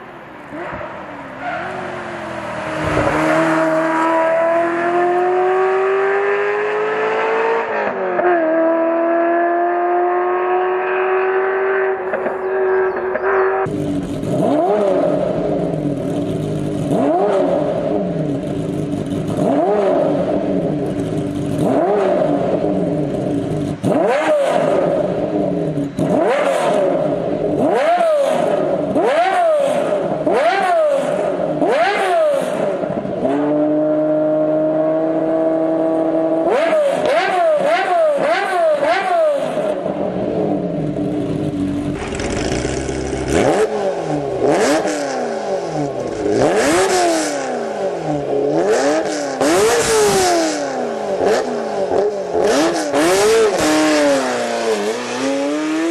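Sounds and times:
car engine revving: 0.4s - 55.9s
another car exhaust: 11.2s - 55.9s.

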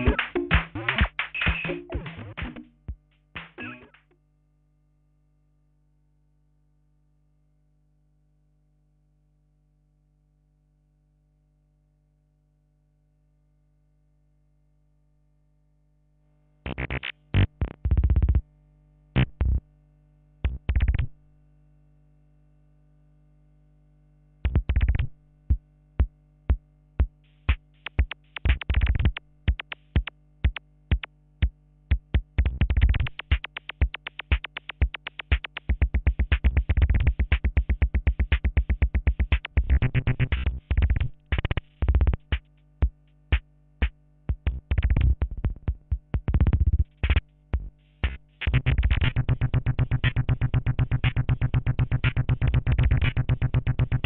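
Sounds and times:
electronic drum machine beats: 0.0s - 4.1s, 24.5s - 54.0s.

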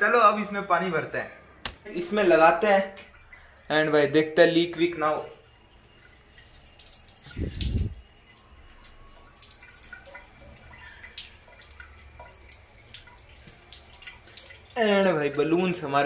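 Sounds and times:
drips on tiled floor: 0.0s - 16.0s
tap water filling balloons: 5.0s - 15.9s.

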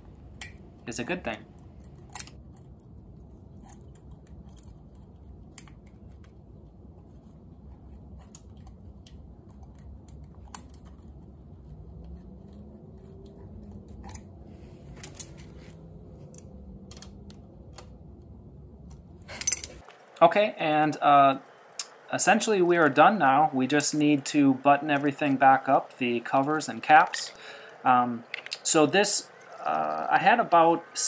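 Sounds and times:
low steady hum: 0.0s - 31.0s
metal tools tapping engine: 19.3s - 20.0s.

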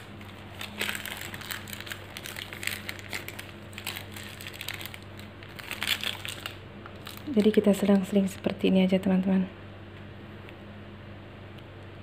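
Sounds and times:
plastic piping bag crinkling: 0.0s - 8.7s.

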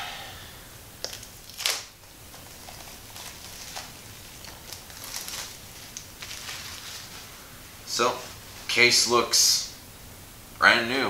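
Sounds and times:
plastic crinkles and clicks: 1.0s - 7.1s
plastic wrap tearing: 1.0s - 7.4s.

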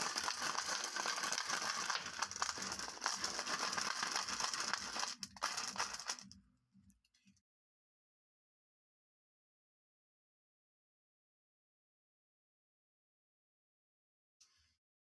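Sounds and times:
glass marbles rattling in tube: 0.0s - 6.3s.

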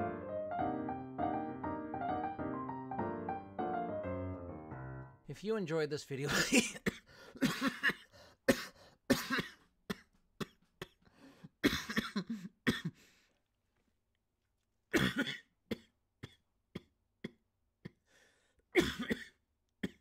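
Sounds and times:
man coughing: 6.2s - 11.0s, 11.6s - 13.0s, 14.9s - 16.4s, 18.8s - 20.0s.

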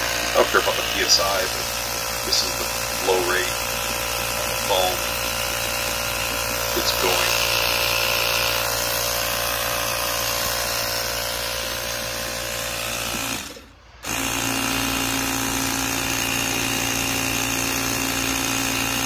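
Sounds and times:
tire inflator droning: 0.0s - 19.0s.

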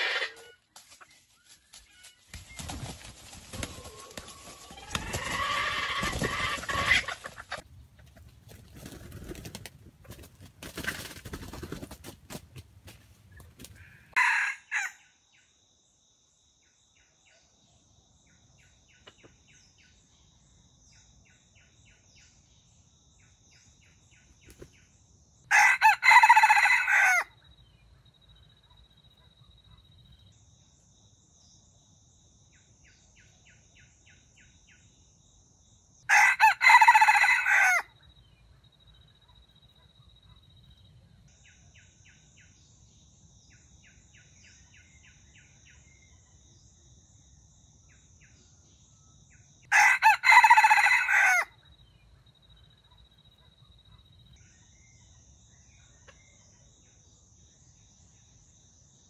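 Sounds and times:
rooster crowing: 13.8s - 15.0s, 25.5s - 27.4s, 36.1s - 37.9s, 49.7s - 51.6s.

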